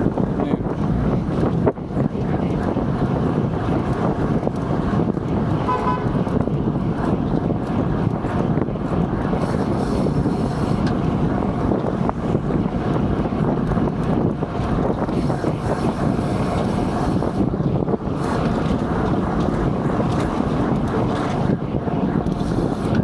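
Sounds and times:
car traffic rumble: 0.0s - 23.0s
wind rushing over microphone: 0.0s - 23.0s
car horn toot: 5.6s - 6.2s.

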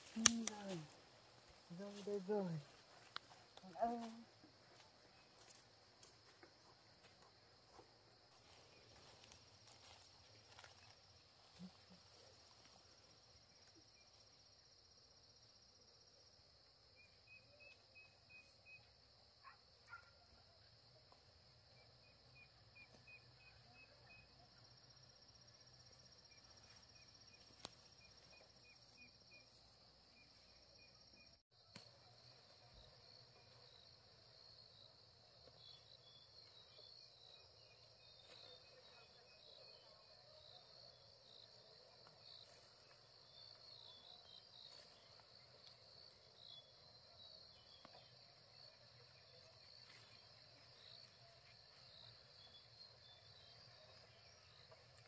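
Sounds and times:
insects chirring: 0.0s - 55.0s.

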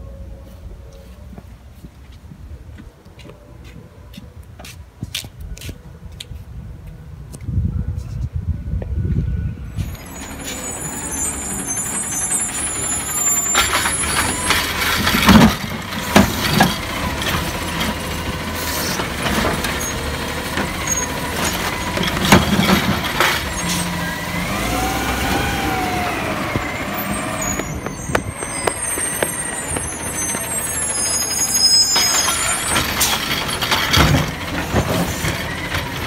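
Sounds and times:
garbage truck engine running: 9.7s - 36.0s
hydraulic arm lifting cart: 9.7s - 36.0s
loud bangs of cart shaken: 11.6s - 18.0s, 20.4s - 23.9s, 32.0s - 36.0s.

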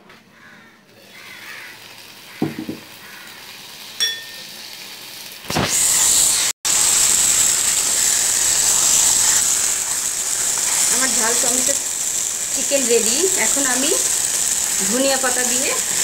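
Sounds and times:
curry sizzling and bubbling: 0.4s - 16.0s
sharp metal clink: 4.0s - 4.4s.

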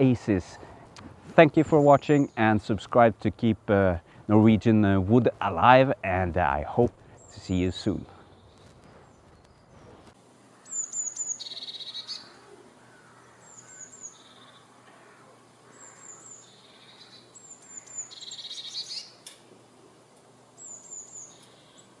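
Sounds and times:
blue tit singing: 7.2s - 14.7s, 15.7s - 19.2s, 20.5s - 22.0s.

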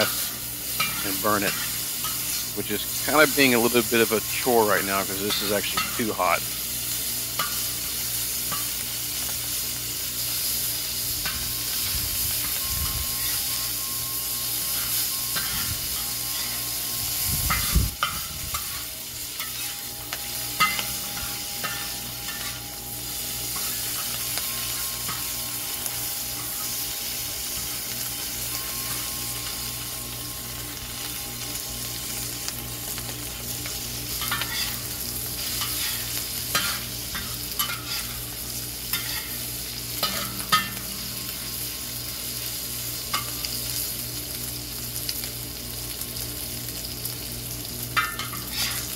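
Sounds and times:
metal spatula scraping steel: 0.0s - 7.8s, 11.2s - 31.6s, 34.1s - 42.1s, 48.0s - 48.9s
bacon sizzling on hot steel: 0.0s - 48.9s
person speaking: 1.0s - 1.6s, 2.6s - 6.5s.

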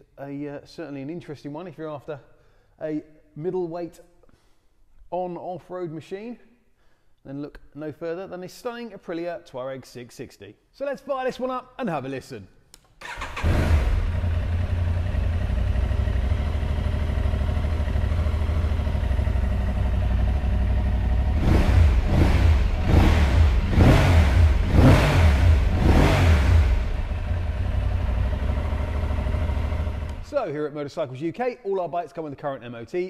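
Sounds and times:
engine revving: 13.0s - 30.3s
motorcycle engine starting and idling: 13.0s - 30.4s.

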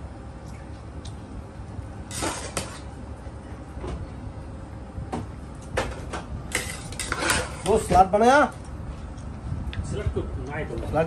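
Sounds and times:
steady low rumble: 8.0s - 11.0s.

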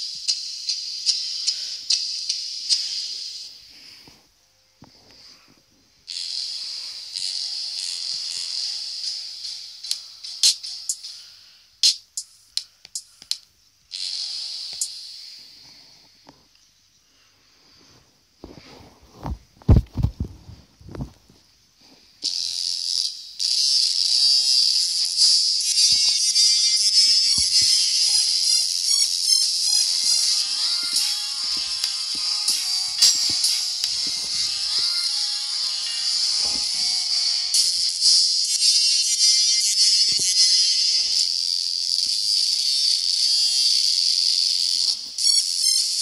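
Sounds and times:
fast pulsing loop: 0.0s - 3.7s, 22.7s - 43.1s
electronic music from small speaker: 0.0s - 4.2s, 6.1s - 13.1s, 13.9s - 15.7s, 22.2s - 46.0s
high buzzing synth: 6.1s - 11.3s, 13.9s - 15.5s, 22.2s - 46.0s.

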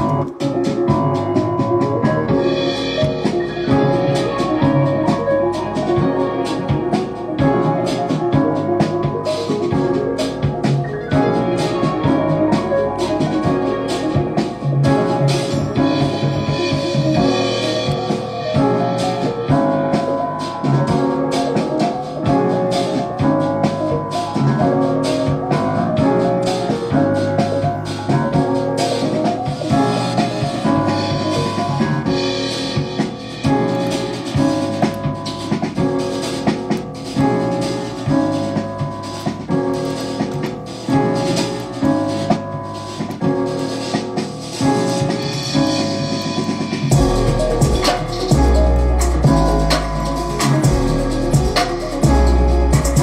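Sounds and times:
hip-hop beat: 0.0s - 53.0s
deep bass note: 46.9s - 53.0s.

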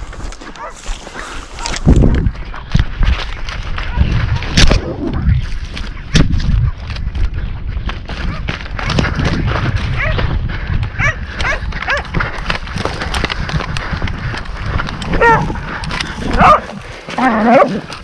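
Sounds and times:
hounds yelping: 10.0s - 10.2s, 11.0s - 12.1s, 15.1s - 17.9s.

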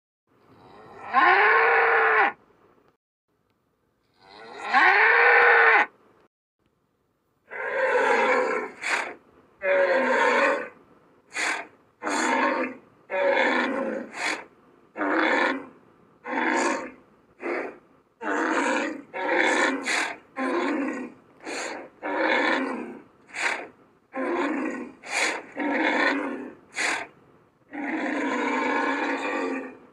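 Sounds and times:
buffalo grunts and bellows: 7.5s - 27.1s.

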